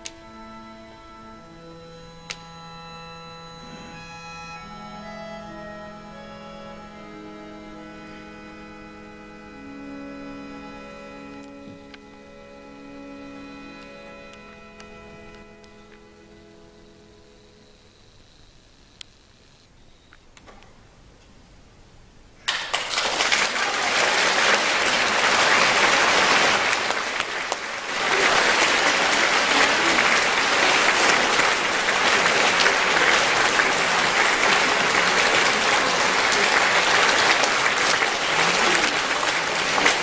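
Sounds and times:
audience applauding: 22.4s - 40.0s.

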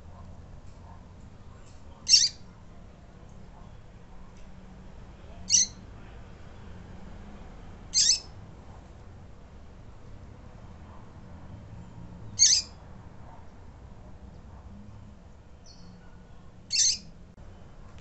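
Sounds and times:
bird peeping: 2.0s - 2.4s, 5.5s - 5.8s, 8.0s - 8.3s, 12.4s - 12.8s, 15.6s - 17.1s.

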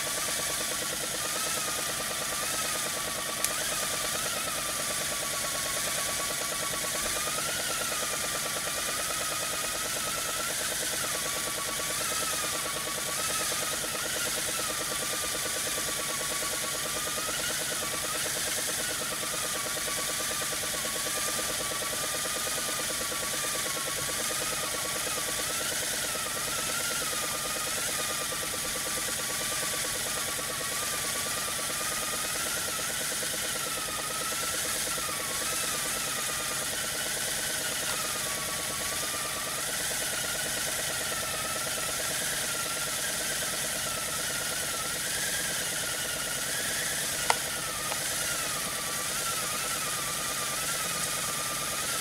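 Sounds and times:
sharp click: 46.8s - 48.5s.

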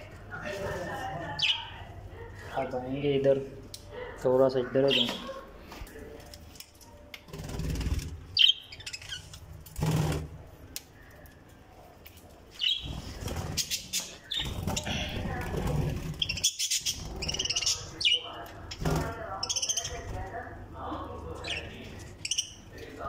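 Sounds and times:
birds flapping wings: 7.3s - 8.3s
high bird chirps: 8.4s - 9.4s, 12.6s - 13.0s.

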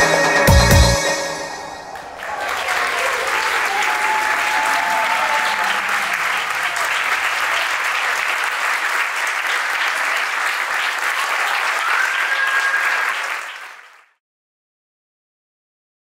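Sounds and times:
audience applauding: 1.8s - 14.2s.

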